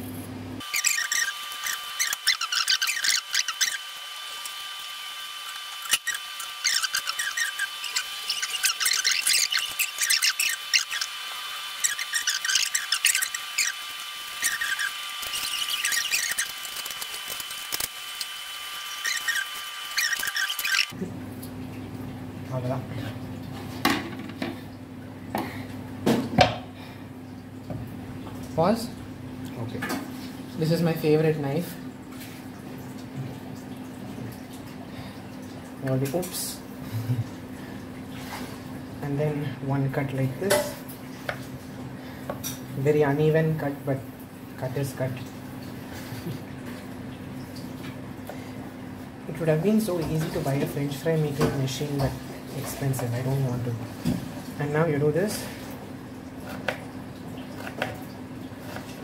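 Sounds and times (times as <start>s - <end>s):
peeler scraping potato: 0.6s - 21.0s.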